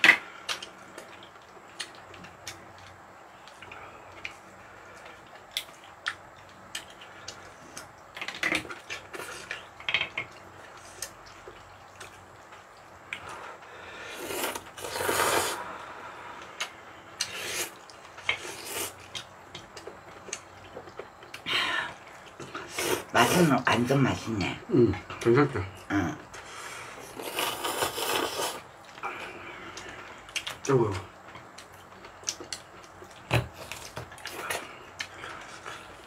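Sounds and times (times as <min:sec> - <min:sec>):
noodle slurping: 0:14.0 - 0:15.8, 0:26.8 - 0:28.7.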